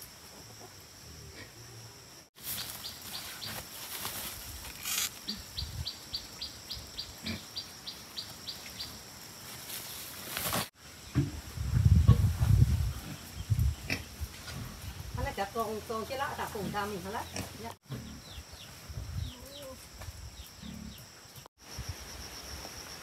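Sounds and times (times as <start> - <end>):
pigs grunting and shuffling: 12.0 - 15.1, 16.4 - 19.9.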